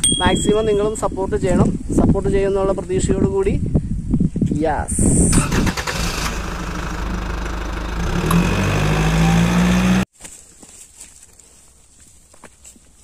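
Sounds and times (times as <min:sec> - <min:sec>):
engine revving: 0:05.3 - 0:10.1.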